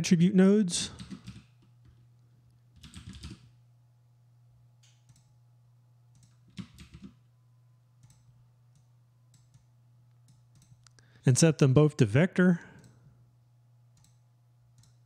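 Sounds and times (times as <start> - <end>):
keyboard typing: 1.0 - 2.0, 2.8 - 3.5, 6.2 - 7.2.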